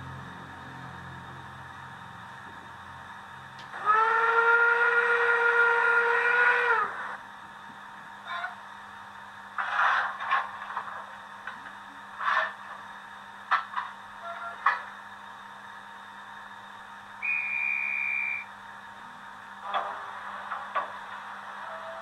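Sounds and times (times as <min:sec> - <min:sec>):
steady high tone: 0:17.2 - 0:18.6.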